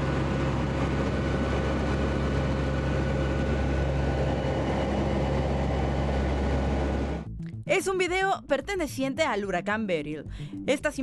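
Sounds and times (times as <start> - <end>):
turboprop engines droning in cabin: 0.0 - 7.4.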